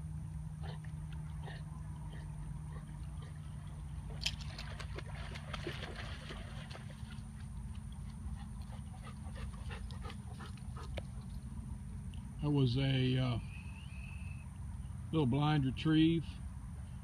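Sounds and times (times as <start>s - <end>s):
rustling through wet grass: 3.0s - 11.3s
dog splashing out of water: 4.1s - 7.4s.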